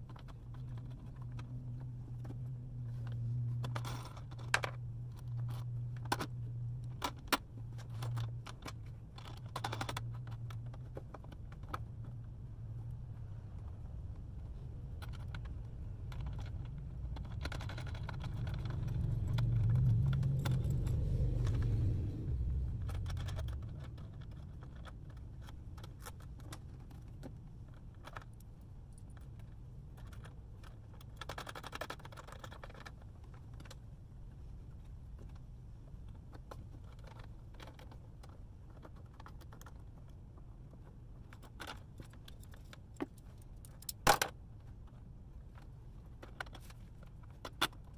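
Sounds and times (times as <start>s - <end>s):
low rumble: 0.5s - 25.9s.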